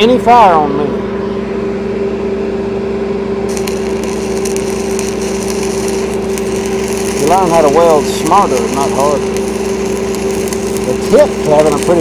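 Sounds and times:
engine drone: 0.8s - 12.0s
welding arc crackling: 3.5s - 12.0s.

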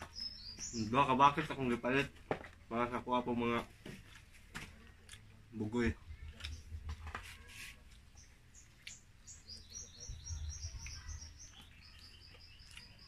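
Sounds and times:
small bird chirping: 0.0s - 1.6s, 6.1s - 13.0s.

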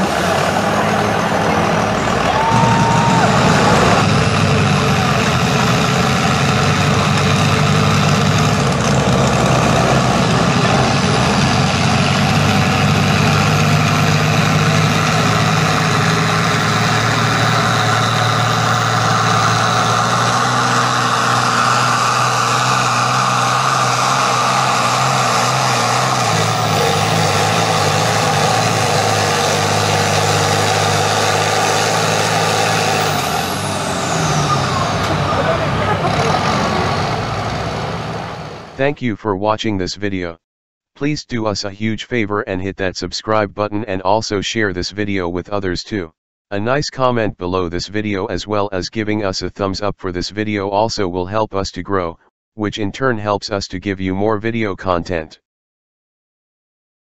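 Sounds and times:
tractor diesel engine under load: 0.0s - 39.2s.

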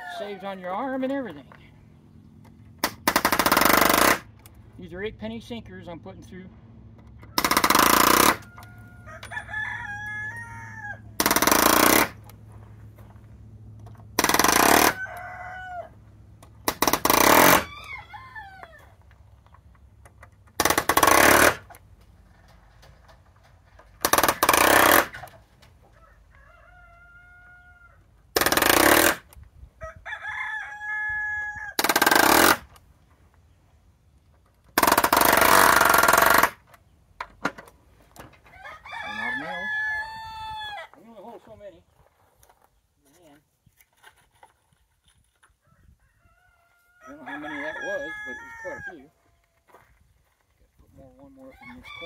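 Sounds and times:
roosters crowing: 0.0s - 4.3s, 7.1s - 19.9s, 20.6s - 32.7s, 38.2s - 41.9s, 45.5s - 49.9s, 51.2s - 52.0s
pneumatic nailer bursts: 2.8s - 4.4s, 7.4s - 8.5s, 11.2s - 12.3s, 14.2s - 15.0s, 16.6s - 17.7s, 20.5s - 21.8s, 24.0s - 25.4s, 28.3s - 29.4s, 31.8s - 32.8s, 34.7s - 36.7s.

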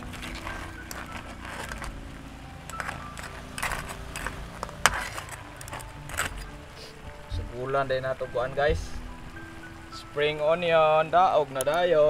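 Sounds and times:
crab shells clattering: 0.0s - 6.7s
metal spatula scraping wok: 2.7s - 6.9s.

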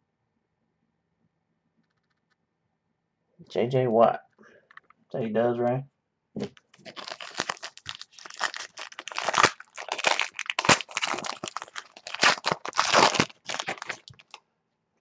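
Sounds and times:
wrapper crinkling and tearing: 6.6s - 14.4s.

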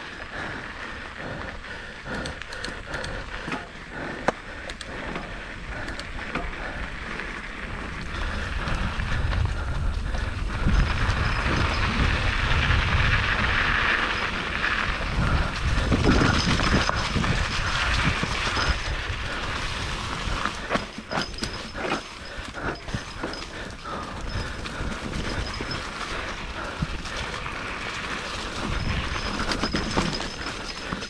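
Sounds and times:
bike rattling: 0.0s - 31.0s
bike tyres on dirt and leaves: 0.0s - 31.0s.

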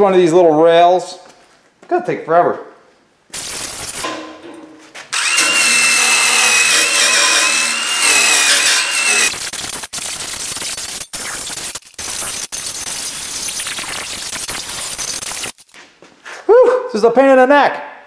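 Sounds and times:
wire wheel scrubbing rust off steel: 5.1s - 15.8s
motor whine: 5.2s - 9.3s.

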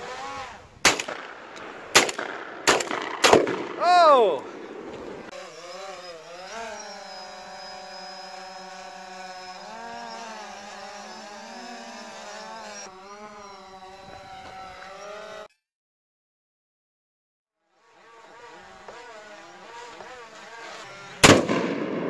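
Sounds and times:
drone propellers whining: 1.4s - 15.5s, 18.0s - 21.3s.

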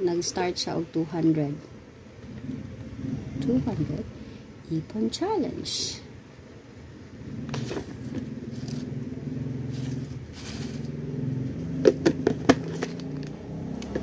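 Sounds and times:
low motor hum: 2.2s - 4.3s, 6.7s - 14.0s
plastic jar clicks and knocks: 11.8s - 14.0s.

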